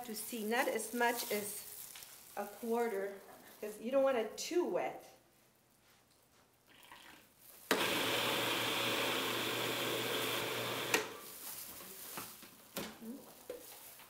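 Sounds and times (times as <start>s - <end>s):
food processor running: 7.7s - 11.2s.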